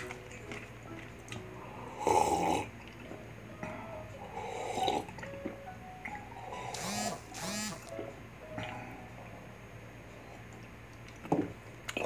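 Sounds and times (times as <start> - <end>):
person sipping from a mug: 4.4 - 5.1.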